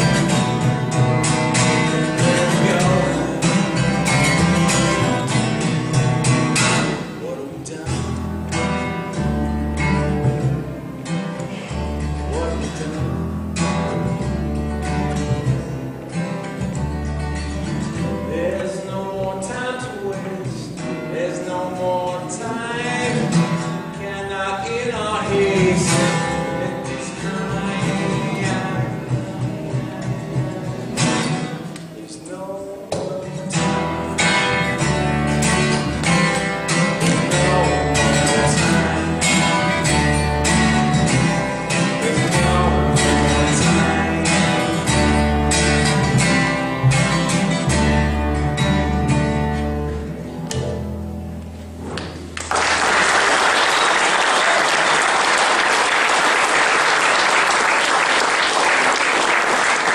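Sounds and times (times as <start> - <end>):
acoustic guitars playing: 0.0 - 59.9
audience applause: 52.4 - 59.9.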